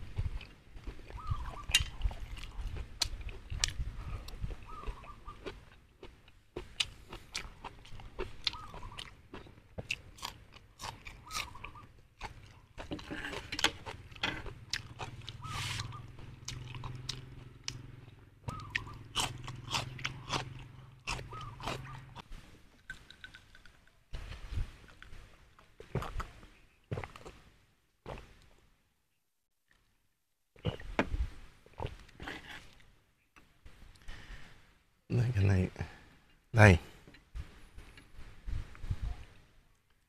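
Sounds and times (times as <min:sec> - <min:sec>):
person chewing: 0:00.1 - 0:24.0, 0:24.8 - 0:26.4
wet mouth clicks and crunches: 0:22.9 - 0:23.8.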